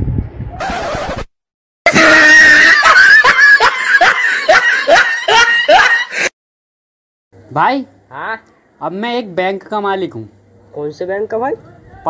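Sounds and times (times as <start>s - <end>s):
high-pitched human wail: 1.9s - 6.3s.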